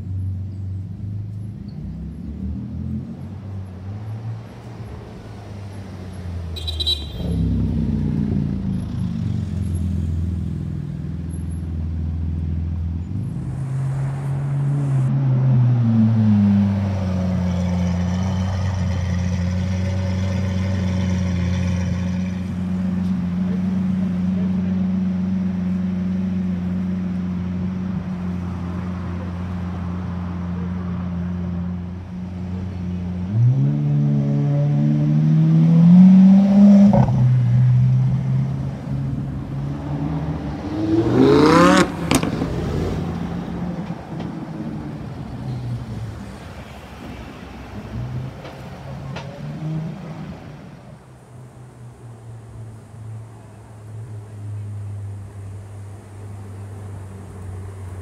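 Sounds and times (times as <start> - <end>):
sports car engine revving: 33.2 - 43.2.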